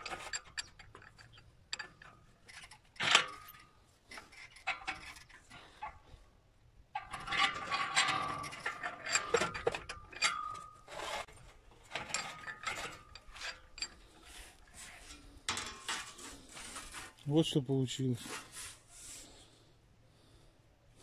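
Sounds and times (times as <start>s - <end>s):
sheet metal rattling and scraping: 0.0s - 6.2s, 6.9s - 17.3s.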